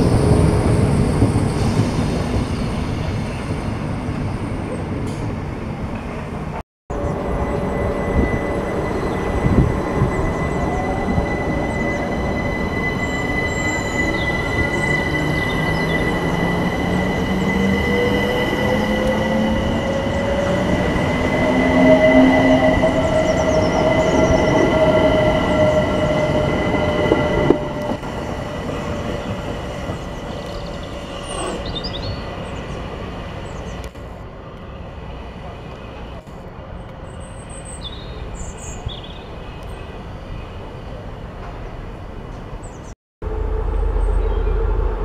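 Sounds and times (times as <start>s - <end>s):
train motors whining rising pitch: 6.9s - 31.8s, 43.2s - 45.0s
steady high-pitched whine: 43.2s - 45.0s.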